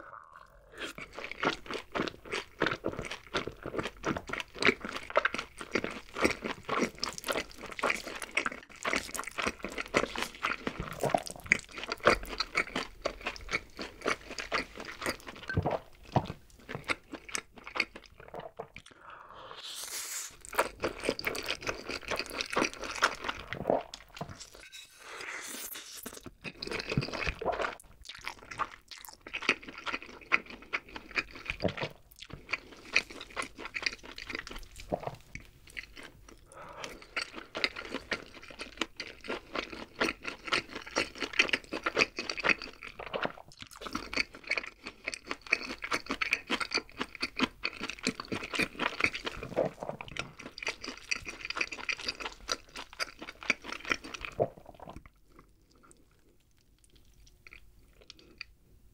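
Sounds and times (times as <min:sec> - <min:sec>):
chewing and crunching: 0:00.7 - 0:19.0, 0:20.4 - 0:24.7, 0:26.1 - 0:58.6
noodles being slurped: 0:17.8 - 0:28.8.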